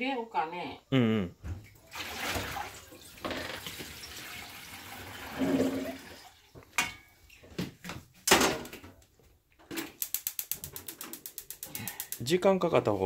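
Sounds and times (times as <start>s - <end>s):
water running: 1.7s - 6.7s.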